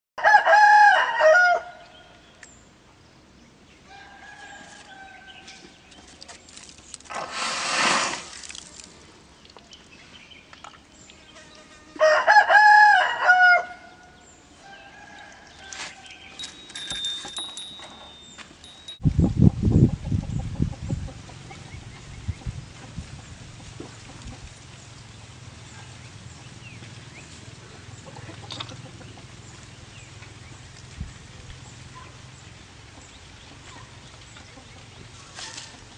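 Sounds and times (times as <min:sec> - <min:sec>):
rooster crowing: 0:00.2 - 0:01.8, 0:03.9 - 0:05.4, 0:12.0 - 0:13.9
distant rooster crows: 0:00.2 - 0:01.9, 0:03.9 - 0:05.7, 0:12.0 - 0:14.0, 0:14.6 - 0:16.4.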